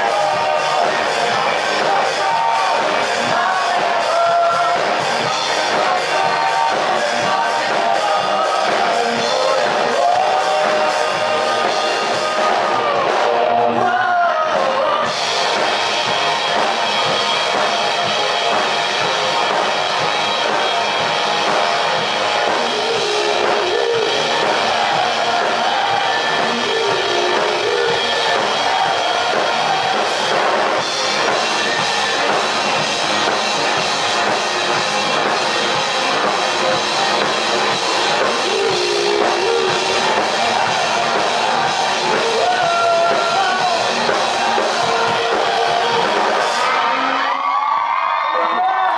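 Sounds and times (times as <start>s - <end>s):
man singing: 0.0s - 15.7s, 21.6s - 30.2s, 38.0s - 47.3s
rock band playing live: 0.0s - 48.9s.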